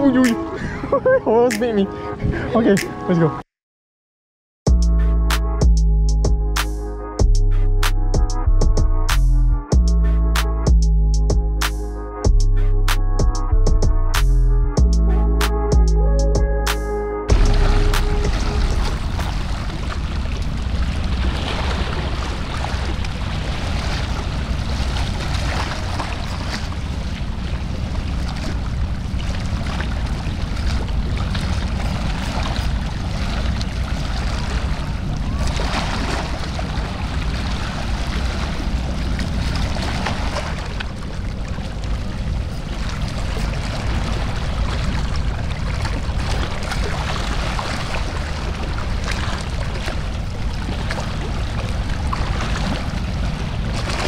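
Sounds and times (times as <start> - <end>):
sea water washing against rocks: 17.3 - 54.0.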